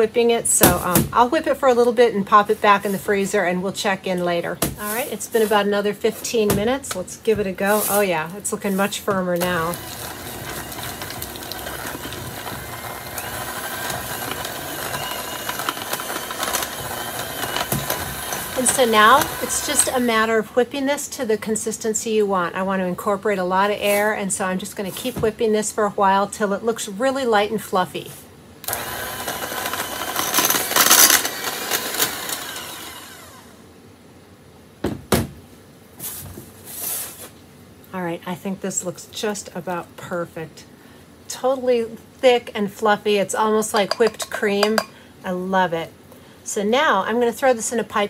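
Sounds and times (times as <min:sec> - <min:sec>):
electric hand mixer whine: 0:09.4 - 0:20.1, 0:28.6 - 0:33.6
mixer knocking on metal worktop: 0:43.8 - 0:44.9.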